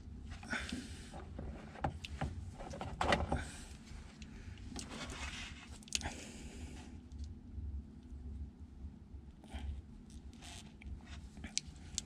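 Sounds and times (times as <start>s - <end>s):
connector clicks and scrapes: 10.1s - 12.0s.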